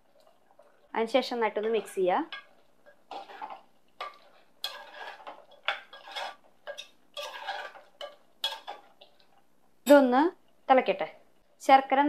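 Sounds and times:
metal spoon scraping a pot: 1.5 - 9.4.

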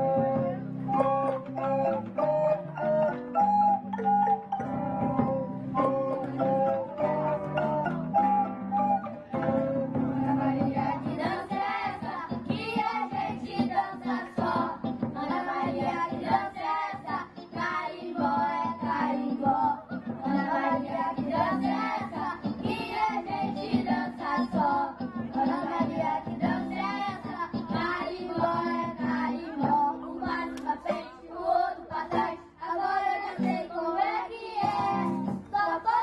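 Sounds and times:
live band accompaniment: 0.0 - 31.1, 33.3 - 33.7, 34.6 - 36.0
children singing together: 9.0 - 36.0.

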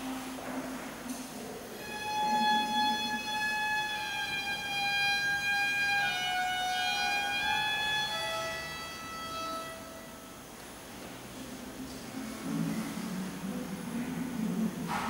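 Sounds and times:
long held musical tones: 0.0 - 10.6.

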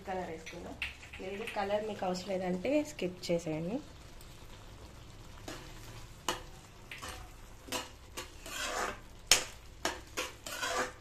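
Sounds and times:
metal spoon scraping a pan: 5.4 - 11.0.

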